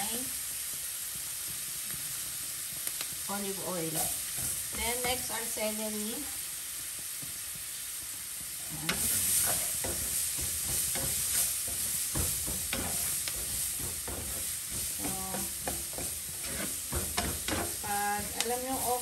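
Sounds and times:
vegetables sizzling in oil: 0:00.0 - 0:19.0
spoon scraping a pan: 0:08.7 - 0:19.0.

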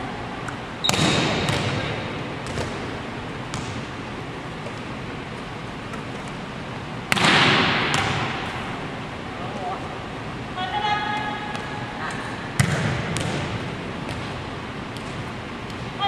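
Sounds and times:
volleyball smacked in gym: 0:00.8 - 0:03.8, 0:07.1 - 0:08.6, 0:12.6 - 0:14.4.

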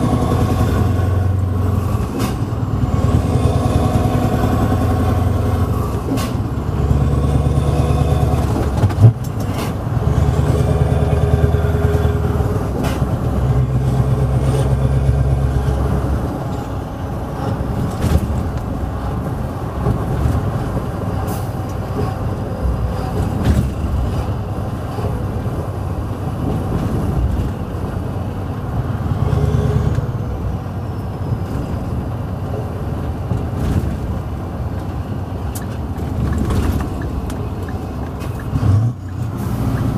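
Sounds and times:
diesel truck engine pulling hard: 0:00.0 - 0:39.9.

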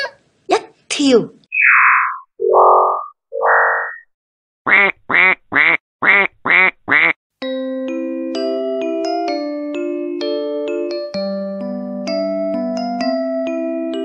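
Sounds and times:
rising electronic tones: 0:01.5 - 0:04.1.

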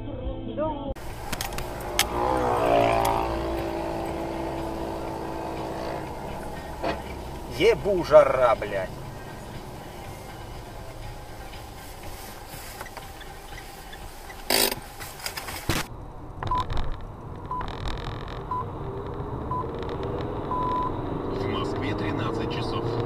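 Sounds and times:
road noise inside car: 0:01.0 - 0:23.0
high electronic beeps: 0:20.5 - 0:21.0.

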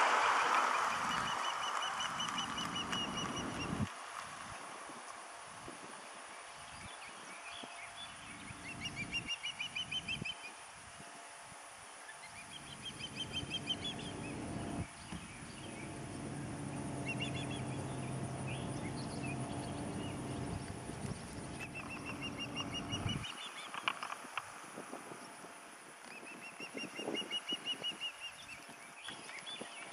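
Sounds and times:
ospreys chirping: 0:00.0 - 0:03.9, 0:12.2 - 0:24.3
steady low drone: 0:12.7 - 0:23.3.

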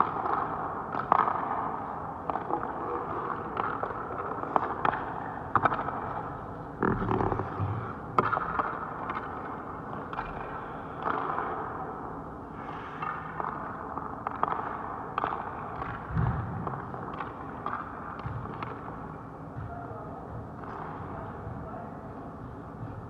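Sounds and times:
pucks and sticks cracking: 0:00.0 - 0:11.8, 0:13.0 - 0:19.2.

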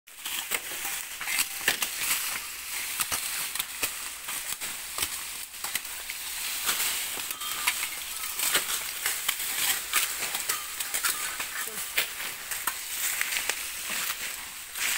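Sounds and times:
dry leaves rustling and crackling: 0:00.1 - 0:14.9
knife chopping cane stalks: 0:00.1 - 0:14.9.

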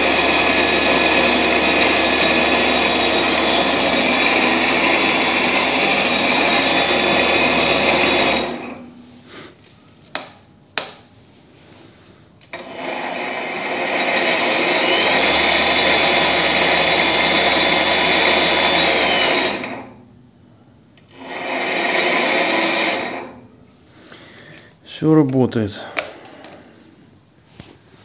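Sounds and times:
lathe motor whining: 0:00.0 - 0:09.1, 0:12.5 - 0:20.0, 0:21.0 - 0:23.5.

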